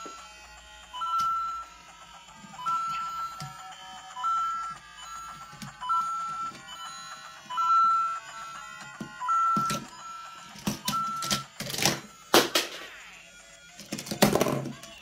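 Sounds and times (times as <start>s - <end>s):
beeping electronic tune: 0.0s - 12.3s
plastic toy knocks and rustles: 13.8s - 14.9s.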